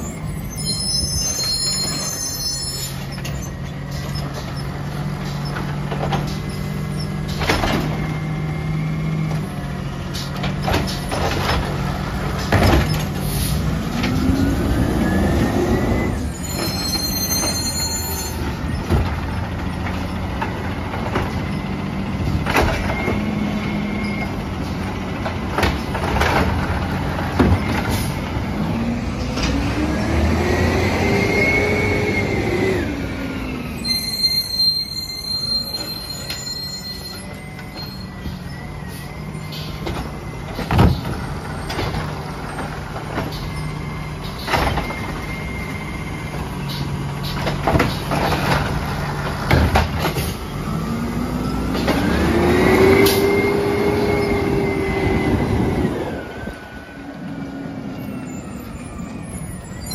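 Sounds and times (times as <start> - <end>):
garbage truck engine revving: 18.4 - 33.8, 38.7 - 59.8.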